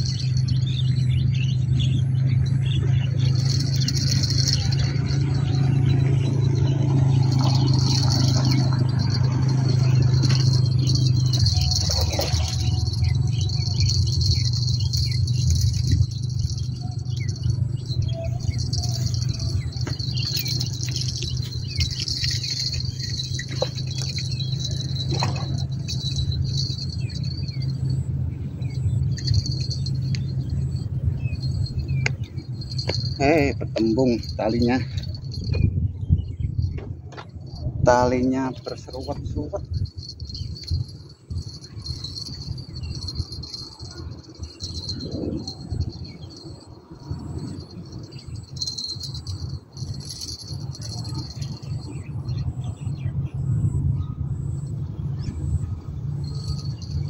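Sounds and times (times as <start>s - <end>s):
insects chirring: 0.0s - 57.0s
excavator diesel engine running: 1.6s - 33.2s.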